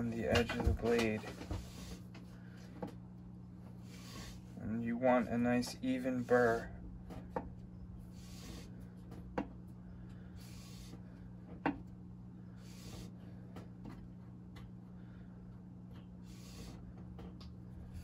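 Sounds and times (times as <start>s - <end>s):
steady low hum: 0.0s - 18.0s
blade rubbing on sandpaper: 16.3s - 16.8s.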